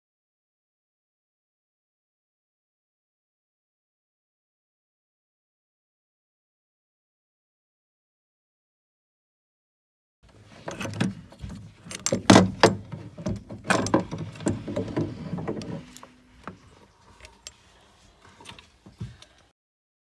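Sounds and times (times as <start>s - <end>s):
metallic clicks and clatter: 10.5s - 17.6s.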